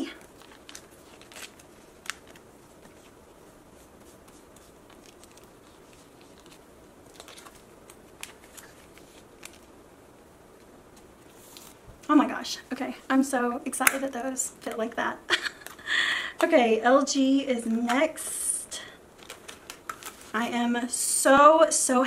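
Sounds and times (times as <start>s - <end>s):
plastic pages rustling: 0.0s - 9.8s, 10.6s - 11.8s, 19.1s - 20.7s.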